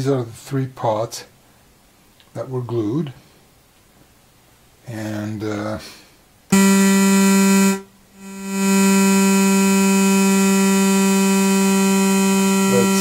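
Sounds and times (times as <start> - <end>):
buzzy synthesizer note: 6.5 - 13.0.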